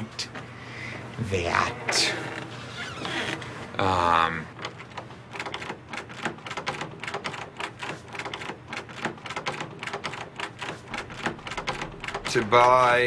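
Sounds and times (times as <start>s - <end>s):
computer keyboard typing: 4.6s - 13.0s.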